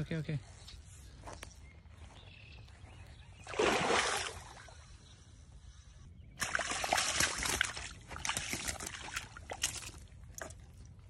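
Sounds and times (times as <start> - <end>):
faint outdoor background noise: 0.0 - 11.0
fish splashing in water: 3.4 - 4.8, 6.4 - 10.7.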